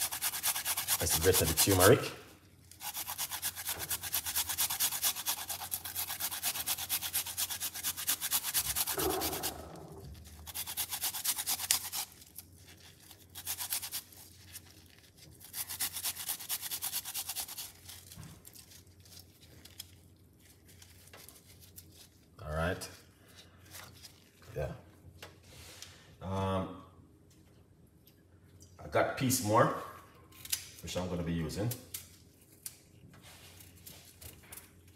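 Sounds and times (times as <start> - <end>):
root rasping on metal grater: 0.0 - 2.1, 2.8 - 18.1.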